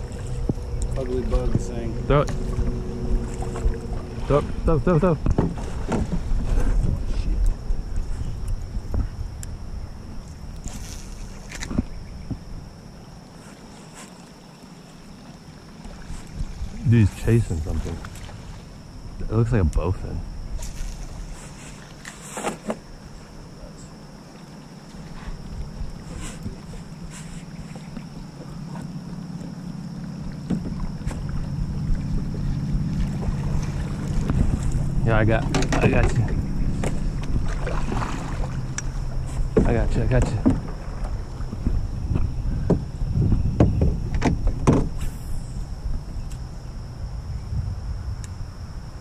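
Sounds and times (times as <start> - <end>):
gear knocking against canoe: 0.0 - 7.4, 26.2 - 45.0
low steady rumble: 0.0 - 13.2, 22.8 - 49.0.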